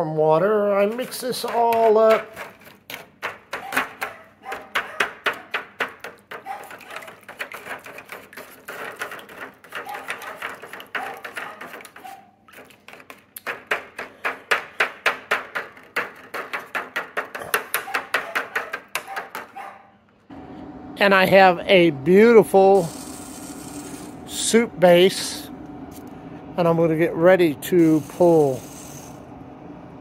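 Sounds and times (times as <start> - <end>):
plastic spoon scraping foil pan: 0.4 - 4.2, 6.1 - 14.2, 22.8 - 24.2.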